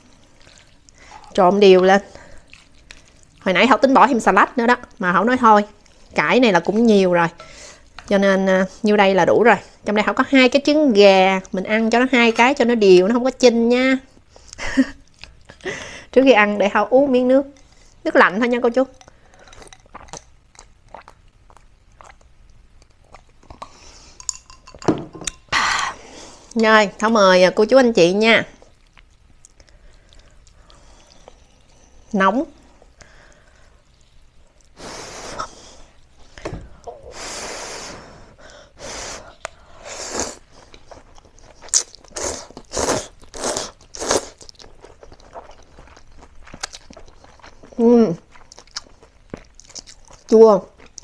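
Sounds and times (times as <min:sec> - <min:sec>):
chewing: 0:00.0 - 0:03.8, 0:18.7 - 0:25.5, 0:28.6 - 0:34.8, 0:40.4 - 0:51.0
swallowing and mouth clicks: 0:19.0 - 0:25.4
person slurping noodles: 0:38.8 - 0:40.5, 0:42.1 - 0:44.5.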